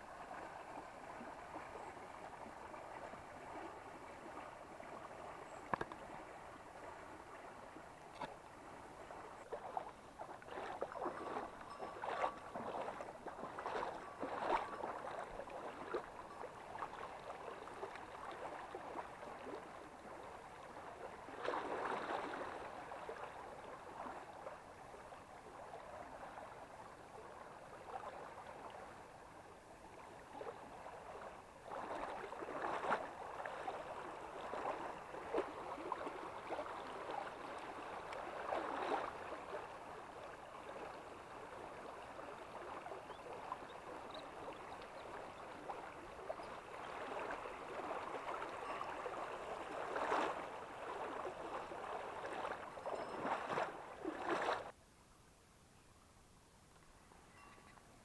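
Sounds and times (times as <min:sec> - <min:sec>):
stream running over rocks: 0:00.0 - 0:54.8.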